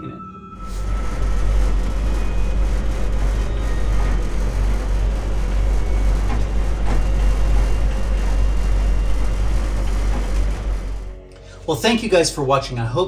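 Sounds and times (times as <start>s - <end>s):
truck engine and road rumble: 0.6s - 11.5s.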